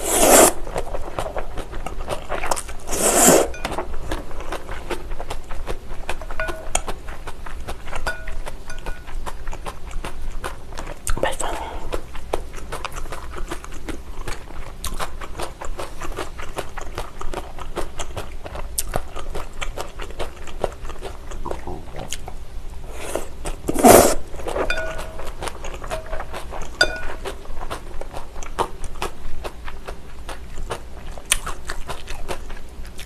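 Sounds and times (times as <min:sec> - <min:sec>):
loud slurp: 0:00.0 - 0:00.6, 0:02.8 - 0:03.6, 0:22.9 - 0:24.7
wet chewing and lip-smacking: 0:00.6 - 0:02.9, 0:03.6 - 0:22.4, 0:23.4 - 0:33.0.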